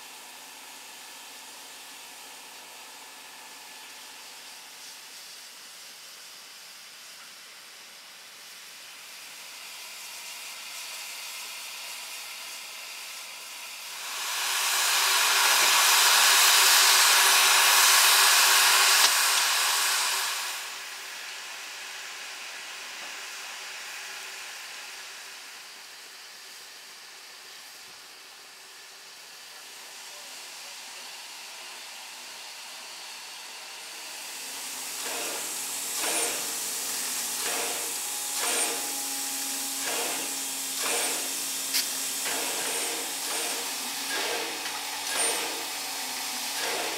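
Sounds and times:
steam locomotive hissing steam: 0.0s - 46.9s
loud blast of steam: 13.7s - 25.3s, 33.7s - 46.9s.

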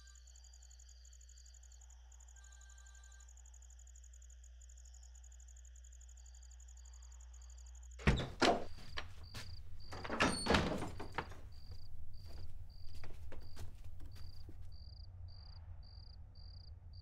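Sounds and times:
crickets chirping: 0.0s - 16.7s
door knocking and rattling: 8.0s - 14.7s.

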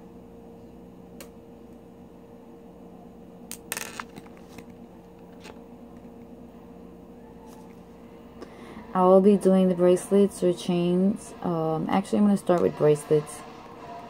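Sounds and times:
steady low hum: 0.0s - 14.0s
pearls clattering on paper plate: 3.5s - 4.6s.

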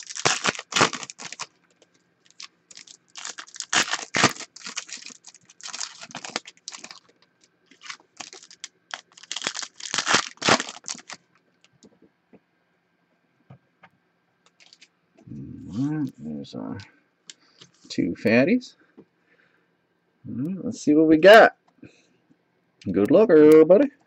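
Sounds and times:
card pack wrappers crinkling: 0.0s - 11.3s, 14.5s - 14.9s.

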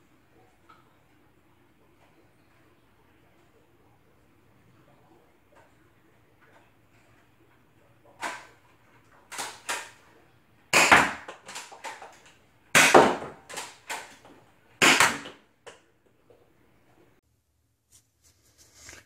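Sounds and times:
toy pistol shot snapping: 8.2s - 8.5s, 9.3s - 10.0s, 10.7s - 15.4s.

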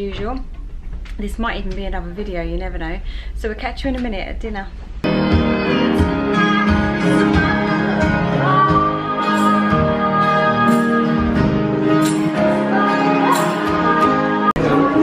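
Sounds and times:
acoustic guitar: 5.0s - 15.0s
grand piano: 5.0s - 15.0s
woman singing: 5.1s - 15.0s.

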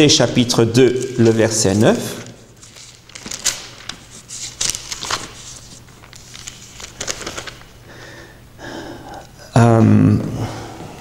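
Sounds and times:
book pages rustling: 1.0s - 7.8s.

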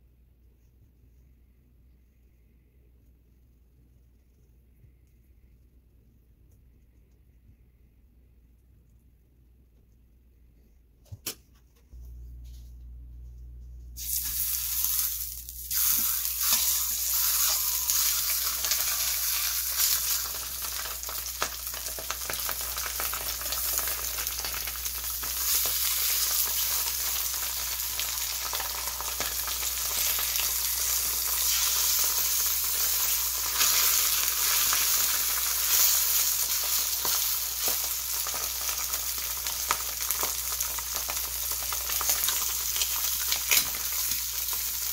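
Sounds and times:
low steady hum: 0.0s - 44.9s
fish fillets sizzling in hot oil: 14.0s - 44.9s.

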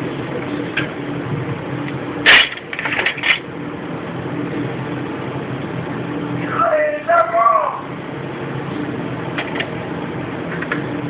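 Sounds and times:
steady background hum: 0.0s - 11.0s
sharp plastic and metal clack: 2.2s - 3.5s.

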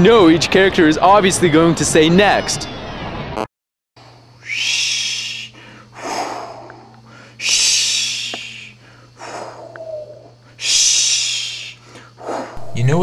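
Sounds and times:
steady low hum: 4.0s - 13.0s
person breathing heavily: 4.5s - 12.7s.

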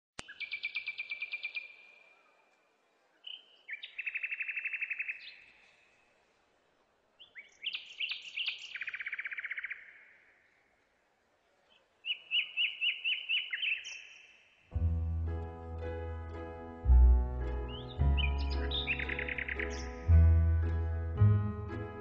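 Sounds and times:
songbird singing with trill: 0.2s - 2.0s, 3.2s - 5.6s, 7.2s - 10.2s, 12.0s - 14.4s, 17.4s - 21.1s.

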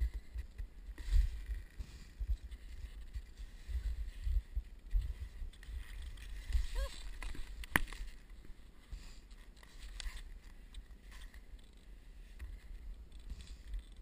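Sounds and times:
wind rumble on microphone: 0.0s - 8.6s.

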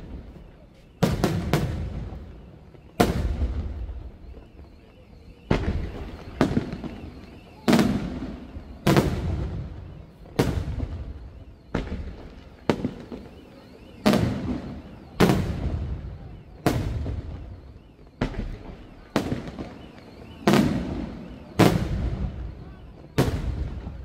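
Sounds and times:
rolling echo: 0.0s - 24.0s.

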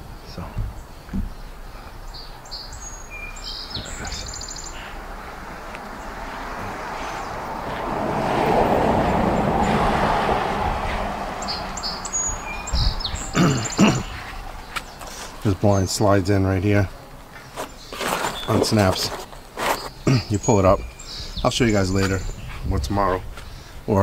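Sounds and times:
small birds chirping: 0.0s - 7.8s, 10.6s - 24.0s
broad rushing noise: 3.6s - 16.4s.

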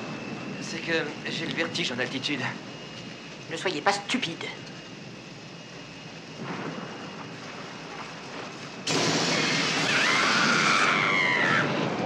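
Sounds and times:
young man screaming: 9.8s - 12.0s.

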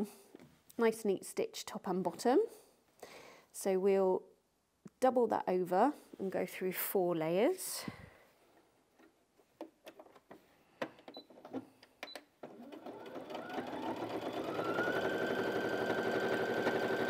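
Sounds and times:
sewing machine whine: 12.4s - 17.0s.

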